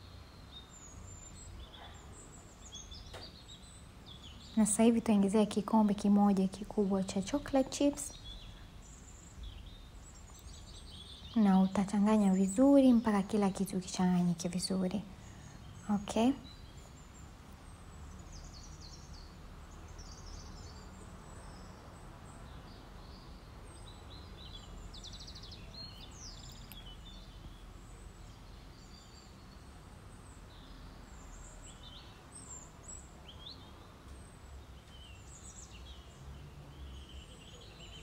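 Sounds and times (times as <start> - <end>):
low steady background hum: 0.0 - 38.0
small birds chirping: 0.0 - 38.0.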